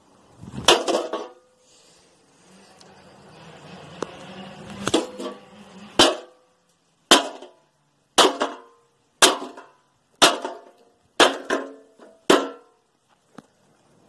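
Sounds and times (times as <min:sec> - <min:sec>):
metal clatter: 0:00.6 - 0:01.5, 0:04.0 - 0:06.5
hammer striking metal chair: 0:04.8 - 0:06.4, 0:08.2 - 0:12.7.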